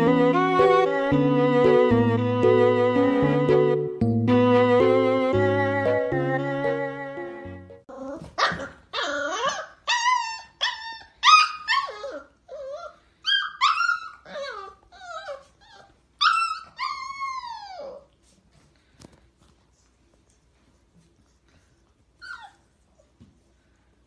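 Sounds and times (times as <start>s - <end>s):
puppy howling and yipping: 7.9s - 18.2s.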